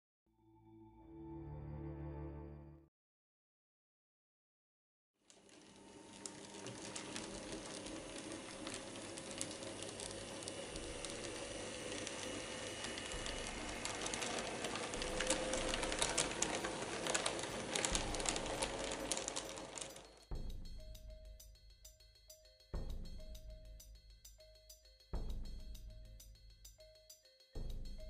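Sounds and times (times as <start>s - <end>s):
model train motor whirring: 5.3s - 20.2s
wheels clicking on rails: 5.3s - 20.2s.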